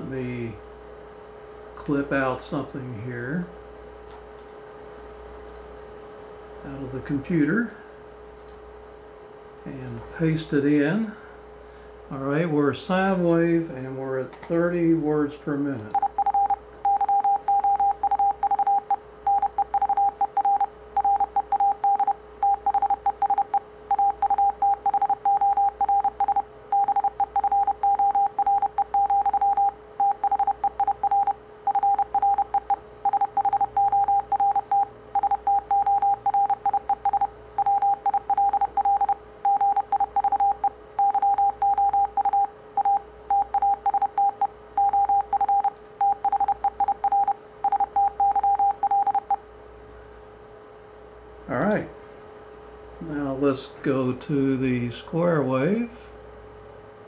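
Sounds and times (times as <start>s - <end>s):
faint steady hum: 0.0s - 57.0s
morse code beeps: 16.0s - 49.4s.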